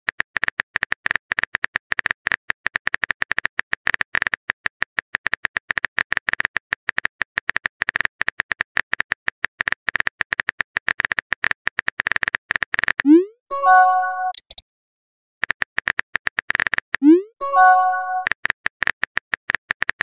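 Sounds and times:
keyboard typing clicks: 0:09.6 - 0:14.6, 0:15.5 - 0:18.4.

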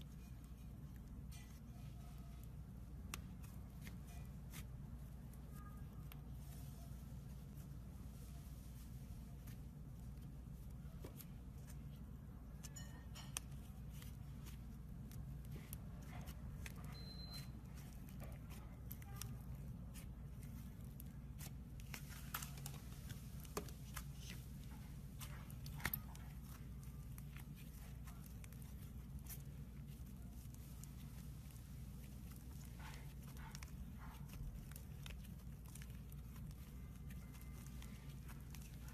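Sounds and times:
slime crackling and popping: 0:12.7 - 0:38.9.

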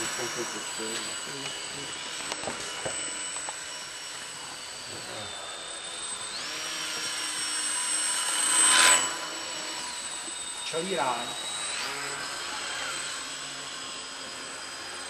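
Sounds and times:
model aeroplane motor whining: 0:00.0 - 0:15.0.

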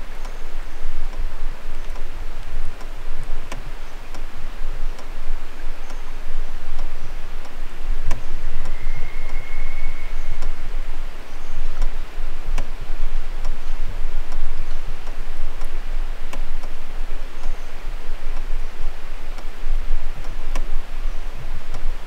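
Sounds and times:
steady low rumble: 0:00.0 - 0:22.0
sharp clicks: 0:11.7 - 0:12.8, 0:13.4 - 0:16.8.

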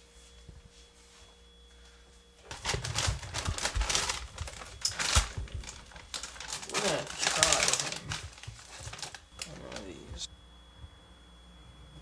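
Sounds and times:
faint room hum: 0:00.0 - 0:12.0
frozen bags crinkling: 0:02.4 - 0:10.3
packages knocking on wire basket: 0:02.5 - 0:09.8.

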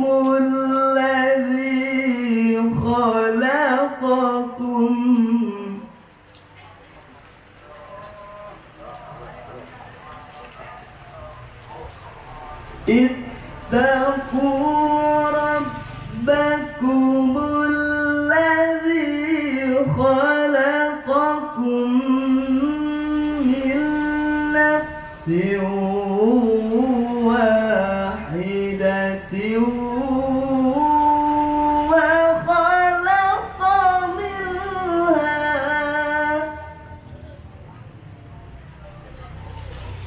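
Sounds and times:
man chanting into microphone: 0:00.0 - 0:06.0, 0:11.0 - 0:37.0.

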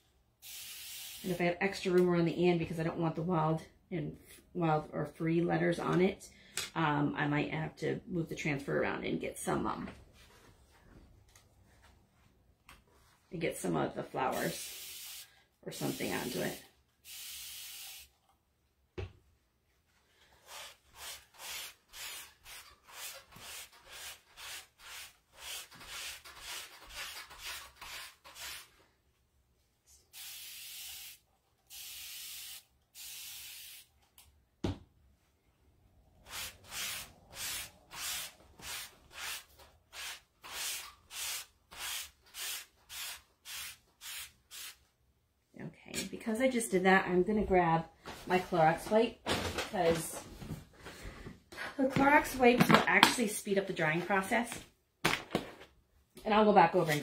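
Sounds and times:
spray bottle hissing: 0:00.4 - 0:01.3, 0:14.4 - 0:15.3, 0:15.9 - 0:18.2, 0:30.1 - 0:33.9, 0:40.0 - 0:44.8.

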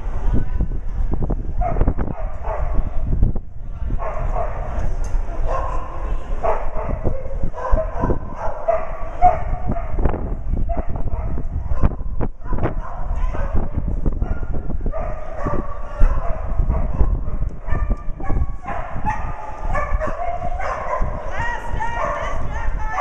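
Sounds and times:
steady low rumble: 0:00.0 - 0:08.6
dog barking: 0:01.6 - 0:02.8, 0:04.0 - 0:04.7, 0:05.4 - 0:10.0, 0:10.7 - 0:23.0.

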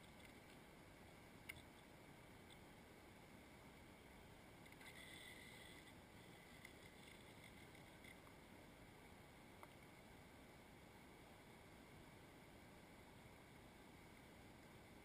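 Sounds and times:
faint steady hiss: 0:00.0 - 0:15.0
small clicks: 0:01.4 - 0:02.6.

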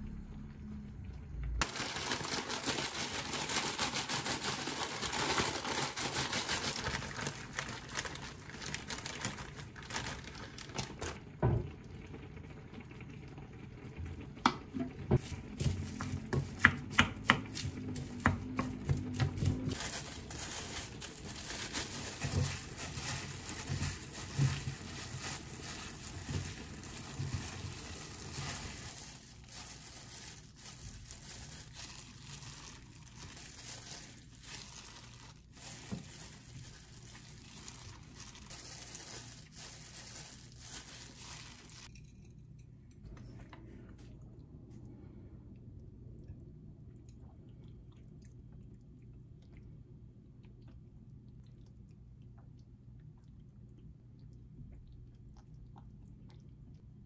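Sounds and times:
snack bag crinkling: 0:01.6 - 0:11.2, 0:19.7 - 0:41.9.

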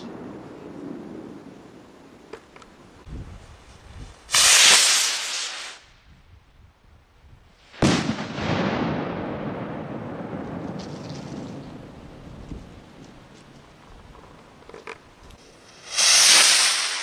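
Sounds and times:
firework rocket hissing: 0:04.3 - 0:05.9, 0:15.6 - 0:17.0
firework bang rumbling: 0:07.8 - 0:12.1.

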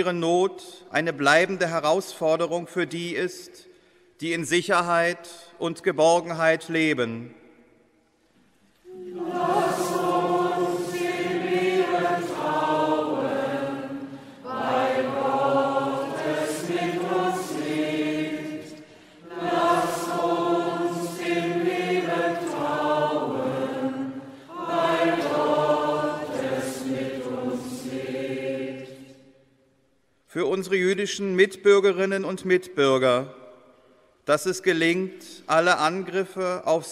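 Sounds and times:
choir singing chanted response: 0:08.9 - 0:29.2.

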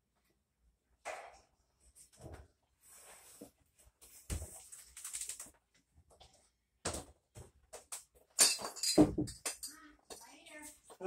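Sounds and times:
metal parts clinking and knocking: 0:08.4 - 0:10.3.

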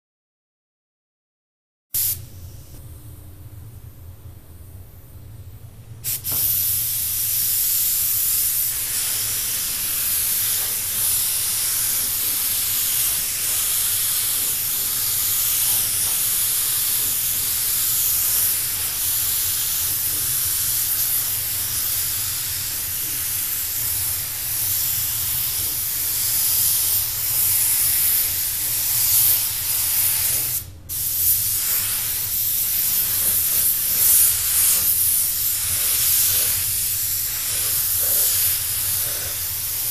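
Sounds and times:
paint spray gun hissing: 0:02.0 - 0:02.2, 0:06.0 - 0:39.9
low steady hum: 0:02.2 - 0:06.1.

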